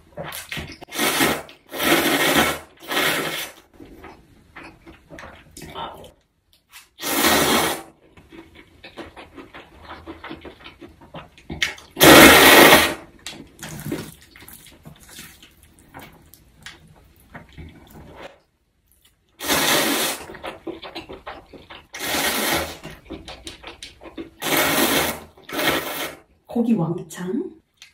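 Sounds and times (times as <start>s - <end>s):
noodles slurped loudly: 0.9s - 3.6s, 7.0s - 7.9s, 19.4s - 23.0s, 24.4s - 26.2s
wet chewing: 8.1s - 12.0s, 13.3s - 19.4s, 20.2s - 22.1s, 22.8s - 24.4s.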